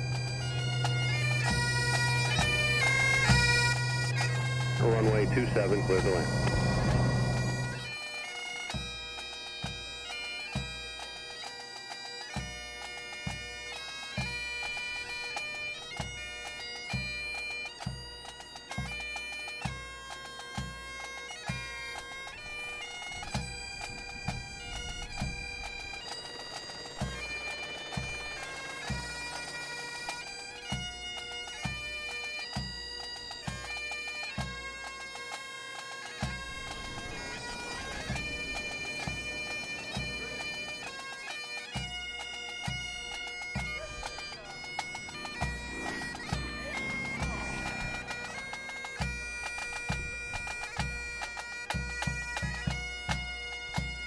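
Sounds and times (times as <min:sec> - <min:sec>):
bagpipes playing a tune: 0:00.0 - 0:54.0.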